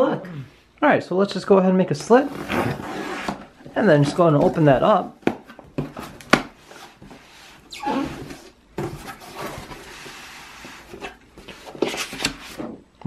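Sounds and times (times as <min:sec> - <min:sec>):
cardboard sliding against box: 0:02.3 - 0:03.5, 0:06.6 - 0:12.6.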